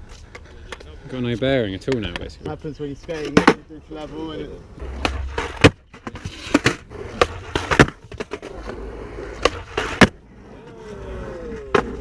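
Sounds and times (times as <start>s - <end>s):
skateboard wheels rolling on concrete: 0.0s - 12.0s
skateboard clacks: 1.8s - 2.4s, 4.8s - 10.2s, 10.8s - 12.0s.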